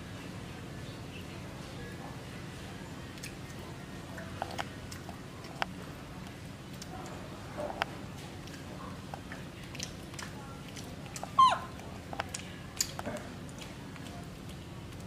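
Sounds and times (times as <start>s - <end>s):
baby monkey squealing: 11.3s - 11.7s.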